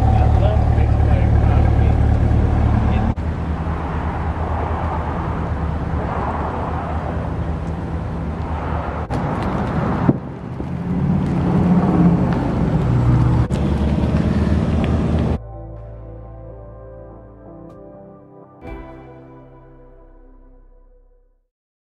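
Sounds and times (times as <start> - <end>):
car engine idling: 0.0 - 9.2.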